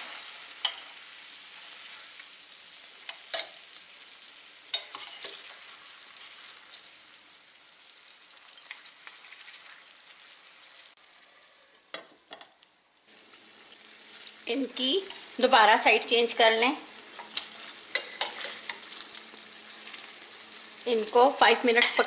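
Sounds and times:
chicken sizzling in a frying pan: 0.0 - 22.0
metal tongs clicking on pan: 0.6 - 0.9, 3.0 - 3.6, 4.7 - 5.4, 17.2 - 18.9.

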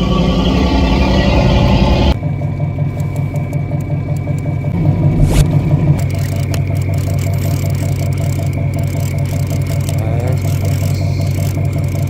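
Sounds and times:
boat engine humming: 0.0 - 12.0
high-pitched whine: 4.0 - 7.5.

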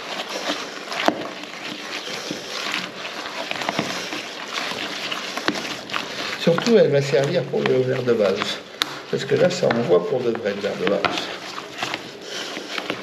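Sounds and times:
spatula scraping in plastic bucket: 0.0 - 13.0
spatula knocking bucket sides: 4.7 - 12.1.

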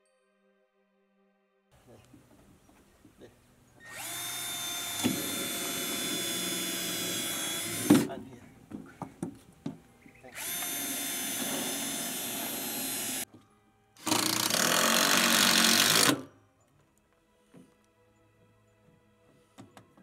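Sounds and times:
cordless drill driving screws: 3.8 - 8.2, 10.3 - 13.2, 14.0 - 16.3.

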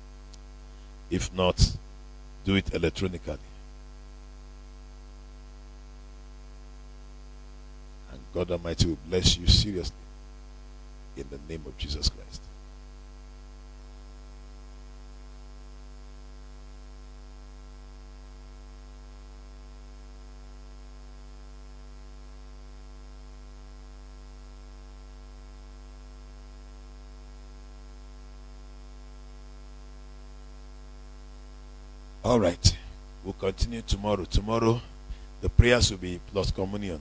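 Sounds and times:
electrical mains hum: 0.0 - 37.0.

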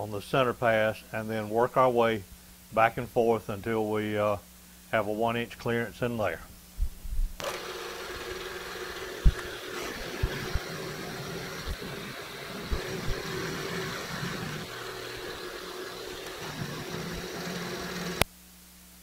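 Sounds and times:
low thumps: 6.8 - 7.4
milling machine cutting metal: 7.4 - 18.2.

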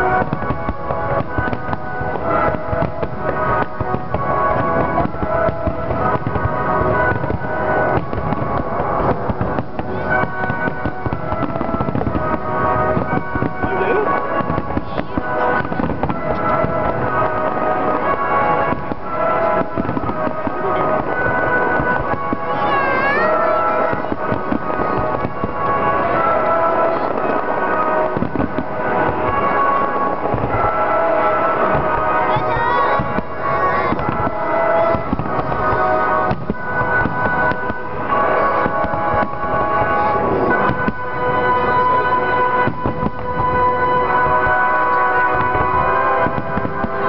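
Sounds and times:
fireworks exploding and crackling: 0.0 - 47.0.

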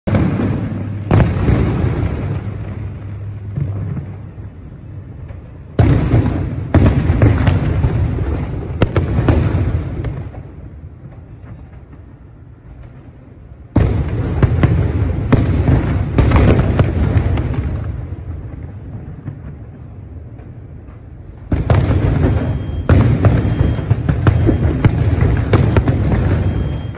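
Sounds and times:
firework shells bursting: 21.2 - 26.9.

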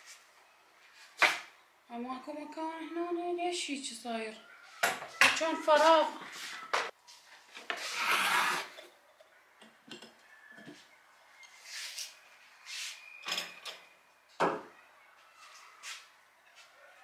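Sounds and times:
ornaments scraping on hard surface: 7.5 - 9.0.

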